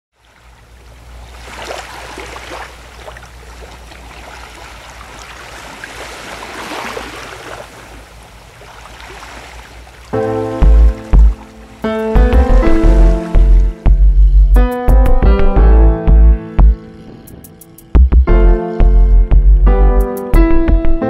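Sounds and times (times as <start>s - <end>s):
small waves washing onto sand: 0.2s - 11.9s
low steady rumble: 12.2s - 20.0s.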